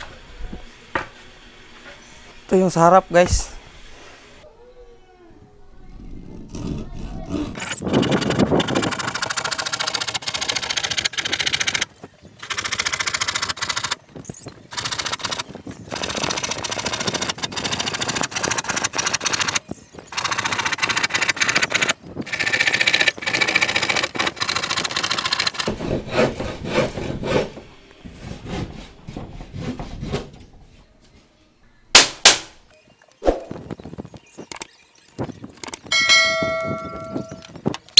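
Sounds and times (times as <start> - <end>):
handsaw cutting plywood: 6.4 - 11.8, 20.3 - 30.4.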